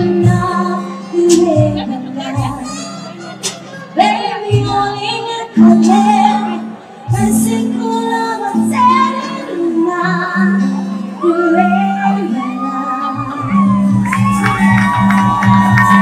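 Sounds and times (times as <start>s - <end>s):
saxophone: 0.0s - 6.8s
acoustic guitar: 0.0s - 16.0s
woman singing: 0.0s - 16.0s.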